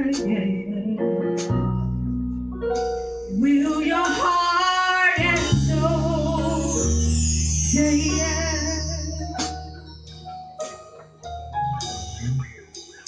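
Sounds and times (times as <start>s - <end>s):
low keyboard chords: 0.0s - 13.0s.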